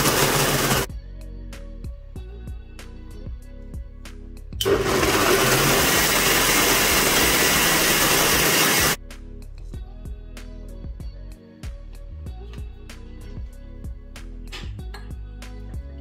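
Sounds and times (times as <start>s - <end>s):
food processor motor: 0.0s - 0.9s, 4.6s - 9.0s
light background music: 0.1s - 16.0s.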